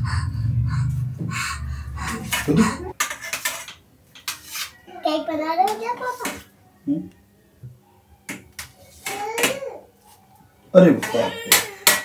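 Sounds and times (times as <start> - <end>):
low rumble: 0.0 - 2.9.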